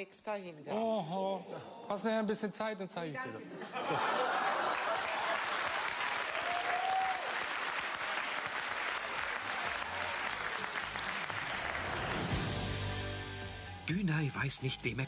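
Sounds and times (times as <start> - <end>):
studio audience applauding: 4.2 - 12.9.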